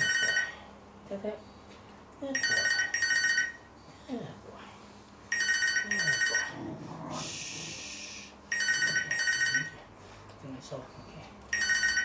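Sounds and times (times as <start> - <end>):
telephone double ring: 2.4 - 3.7, 5.3 - 6.5, 11.5 - 12.0.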